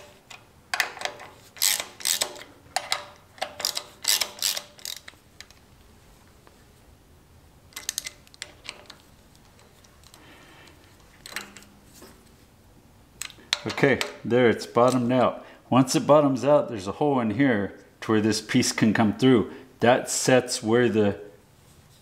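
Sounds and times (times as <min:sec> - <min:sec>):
hand ratchet clicking: 0:00.0 - 0:05.6.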